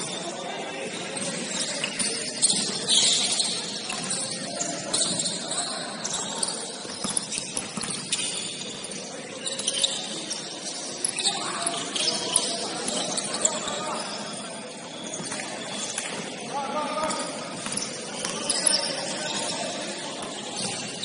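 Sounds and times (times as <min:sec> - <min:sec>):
basketball bouncing on court: 0:06.8 - 0:08.4, 0:17.0 - 0:18.6.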